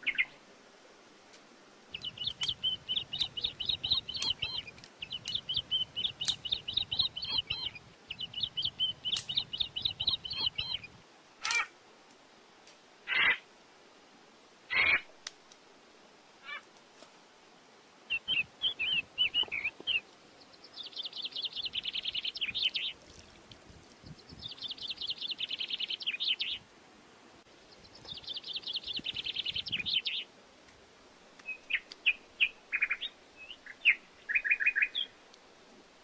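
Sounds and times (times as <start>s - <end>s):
songbird chirps: 0.0s - 0.4s, 1.9s - 11.7s, 18.0s - 26.7s, 27.4s - 30.3s, 31.4s - 35.4s
songbird trilled songs: 1.9s - 11.0s, 18.1s - 26.6s, 27.7s - 30.2s.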